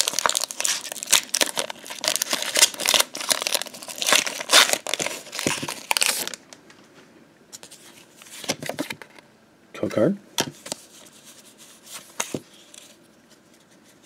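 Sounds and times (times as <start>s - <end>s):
foil wrapper tearing and crinkling: 0.0s - 6.4s.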